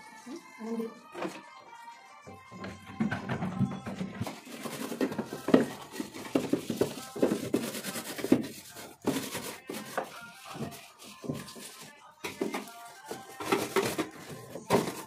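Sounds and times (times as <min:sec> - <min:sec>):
plastic parts handled: 0:04.2 - 0:15.0
sponge scrubbing plastic: 0:04.2 - 0:15.0.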